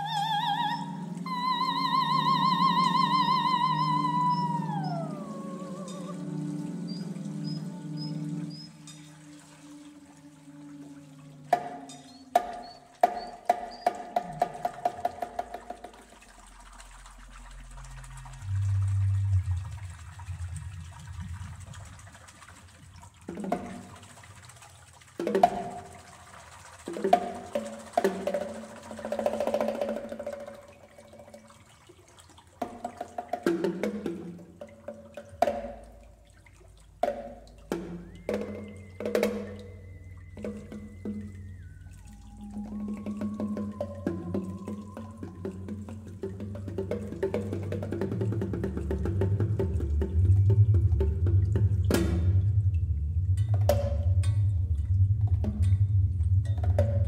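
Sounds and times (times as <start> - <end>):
low water-like rumble: 0.0 - 57.0
low hum: 16.3 - 22.4, 39.6 - 57.0.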